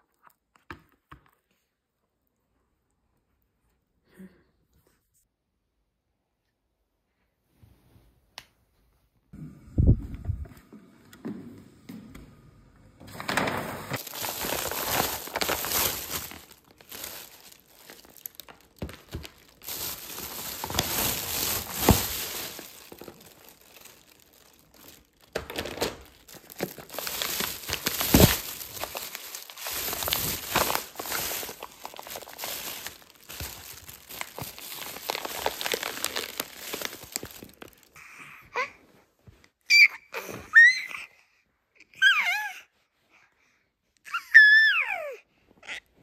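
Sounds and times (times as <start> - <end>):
plastic bag rustling: 13.1 - 38.0
packages crackling and knocking: 13.2 - 38.0.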